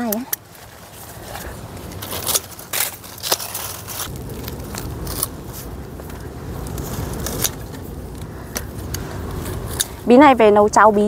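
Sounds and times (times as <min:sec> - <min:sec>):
vines and leaves rustling: 0:00.0 - 0:11.0
stems snapping: 0:01.3 - 0:09.1.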